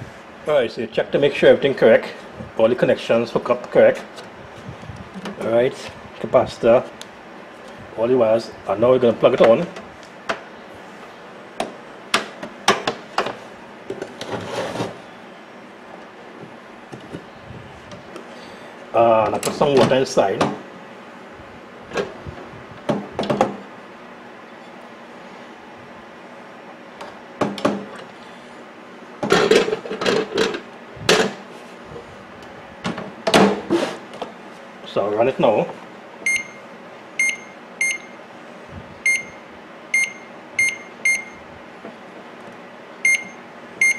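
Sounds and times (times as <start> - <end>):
cord rubbing scrape: 14.2 - 15.0.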